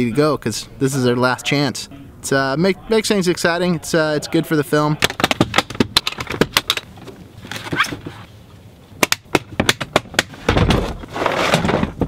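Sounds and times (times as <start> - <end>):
plastic case being handled: 5.0 - 8.3.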